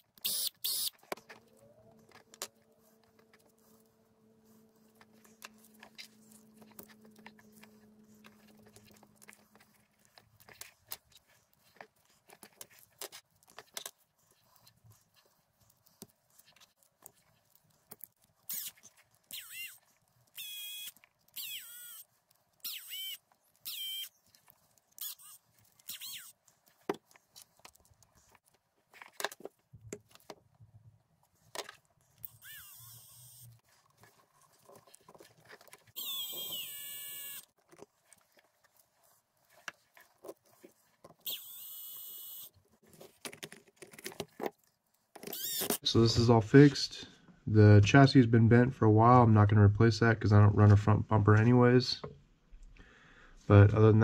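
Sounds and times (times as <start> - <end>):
electric screwdriver whining: 0.0 - 1.4, 18.5 - 19.8, 20.4 - 22.0, 22.6 - 24.1, 32.2 - 33.6, 36.0 - 37.5, 41.2 - 42.5, 45.2 - 45.8
small parts clicking and clattering: 4.9 - 30.6.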